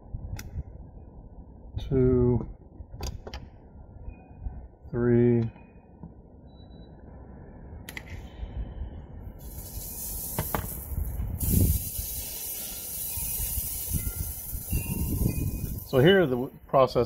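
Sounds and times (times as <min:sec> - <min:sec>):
sprinklers hissing: 0:09.4 - 0:16.0.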